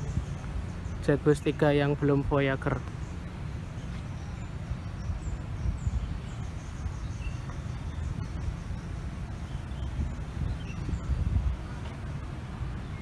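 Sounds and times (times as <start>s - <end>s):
steady low rumble: 0.0s - 13.0s
faint bird chirps: 3.0s - 11.3s.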